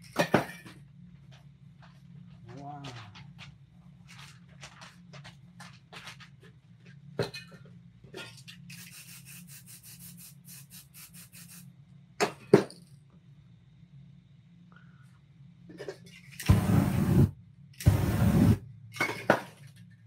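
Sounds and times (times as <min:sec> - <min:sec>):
spray can bursts: 0:08.7 - 0:11.7, 0:16.4 - 0:18.6.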